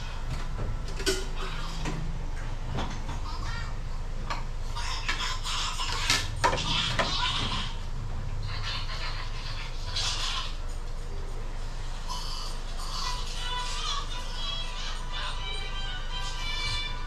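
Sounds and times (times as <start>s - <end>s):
plates and ladle clinking: 0.8s - 1.6s.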